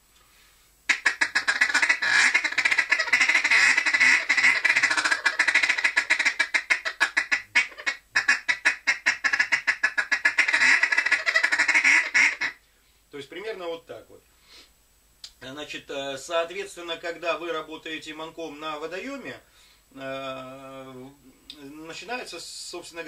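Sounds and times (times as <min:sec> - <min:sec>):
duck call feeding chatter: 0:00.9 - 0:12.6.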